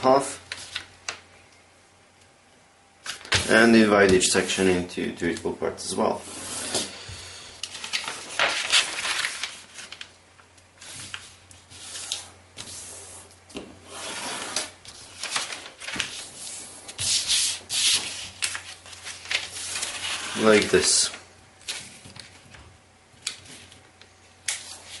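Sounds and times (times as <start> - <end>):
paper rubbing swishes: 10.8 - 21.0.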